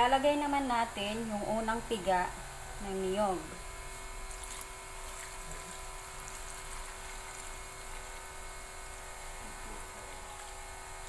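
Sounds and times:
electrical hum: 0.0s - 11.0s
liquid trickling and splashing: 4.1s - 8.4s.

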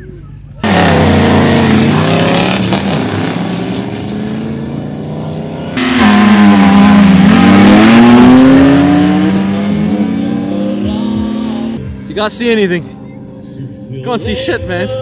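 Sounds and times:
truck engines revving: 0.0s - 13.7s
truck accelerating away: 0.6s - 11.8s.

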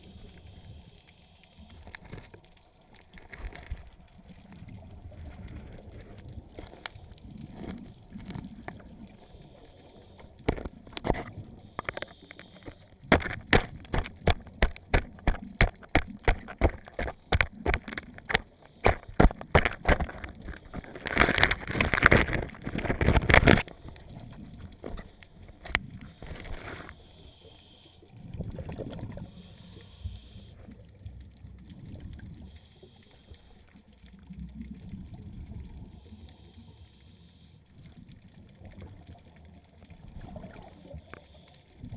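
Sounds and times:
water sloshing: 10.2s - 27.1s
tool crunching into sea urchin: 10.5s - 23.7s.

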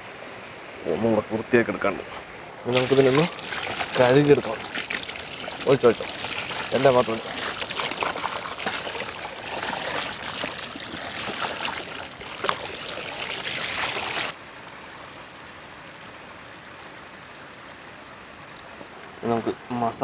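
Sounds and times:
running water: 2.5s - 19.0s
water splashing on chickens: 2.7s - 14.4s.

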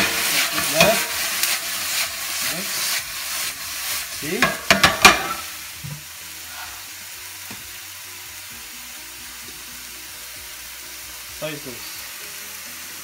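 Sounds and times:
spoon clacking against pan: 0.0s - 2.1s, 4.4s - 5.4s
food sizzling in a frying pan: 0.0s - 13.0s.

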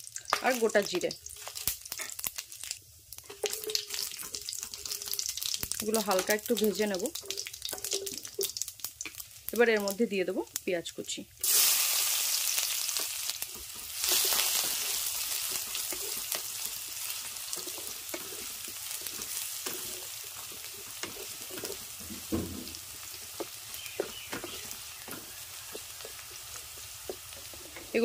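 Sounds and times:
onions sizzling in oil: 0.0s - 28.0s
spatula tapping and scraping pan: 6.1s - 8.5s, 13.5s - 28.0s.

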